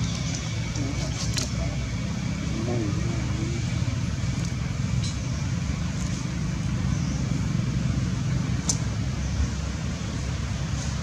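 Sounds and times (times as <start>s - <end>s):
low outdoor rumble: 0.0s - 11.0s
faint sharp clicks: 8.6s - 8.8s.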